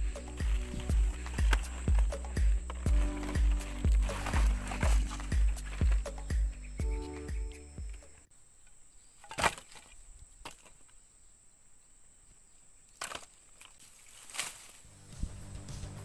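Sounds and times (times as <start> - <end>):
wooden knocks of firewood sticks: 0.0 - 8.1, 13.0 - 14.8
high insect whine: 0.0 - 9.0.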